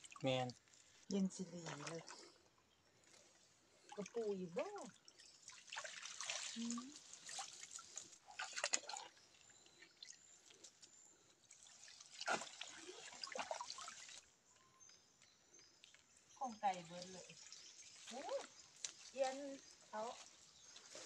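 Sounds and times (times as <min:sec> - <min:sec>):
water splashing and running off: 0:03.9 - 0:09.1, 0:11.5 - 0:14.3, 0:16.6 - 0:19.5.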